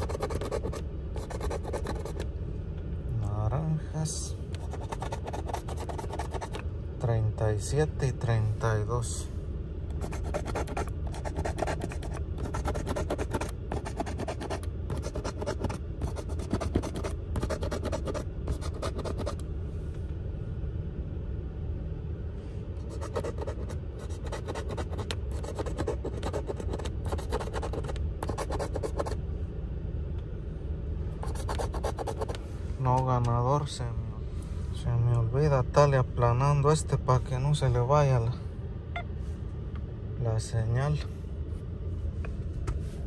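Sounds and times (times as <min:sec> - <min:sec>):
coin scratching lottery ticket: 0:00.0 - 0:02.2, 0:04.6 - 0:06.6, 0:09.9 - 0:19.4, 0:22.8 - 0:29.2, 0:31.2 - 0:32.4
steady low hum: 0:00.0 - 0:43.0.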